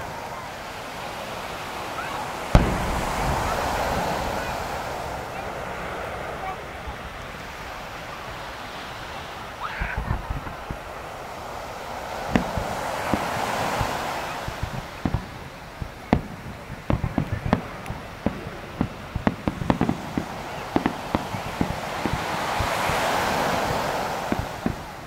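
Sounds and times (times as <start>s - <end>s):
fireworks shells bursting: 2.4s - 8.1s, 12.2s - 25.0s
rushing noise: 2.4s - 15.0s.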